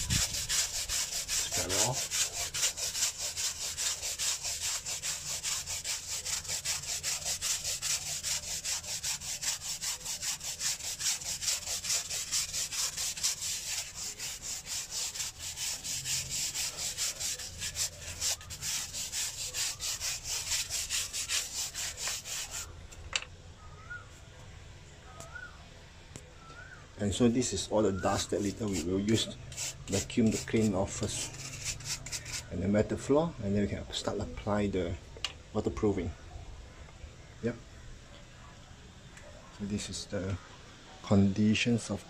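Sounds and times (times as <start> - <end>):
brush scrubbing concrete: 0.0 - 22.7, 28.0 - 32.6.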